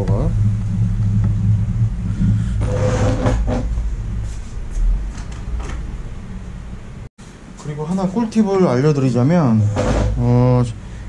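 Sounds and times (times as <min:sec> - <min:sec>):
steady low rumble: 0:00.0 - 0:07.1.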